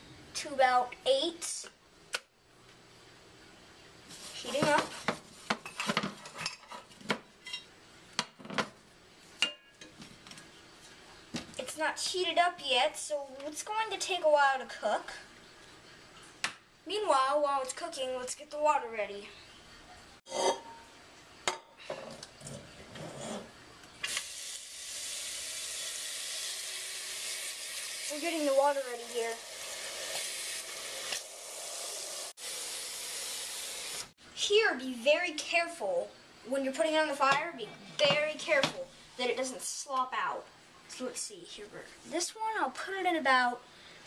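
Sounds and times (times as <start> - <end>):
water running into metal pot: 24.0 - 34.1.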